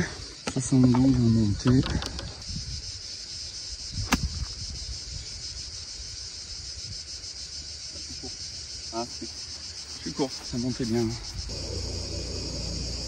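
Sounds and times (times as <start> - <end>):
insects chirring: 0.0 - 13.0
wind rumble on microphone: 1.4 - 3.0, 3.8 - 5.7.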